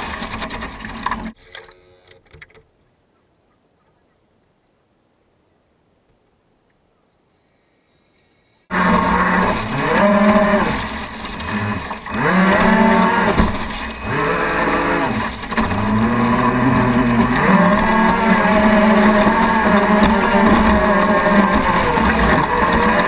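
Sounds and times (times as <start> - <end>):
electric motors whining: 8.7 - 23.0
water rushing past hull: 8.7 - 23.0.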